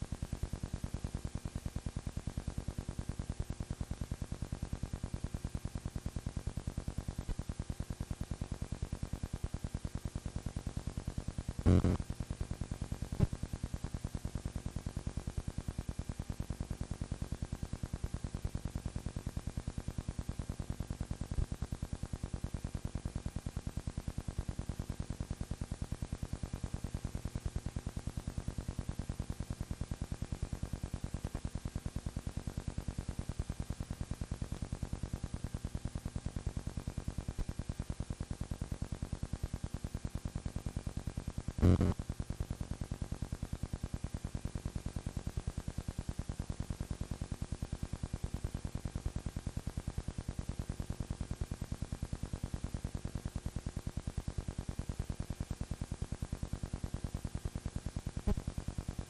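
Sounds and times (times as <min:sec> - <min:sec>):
low hum: 0:41.6 - 0:42.0.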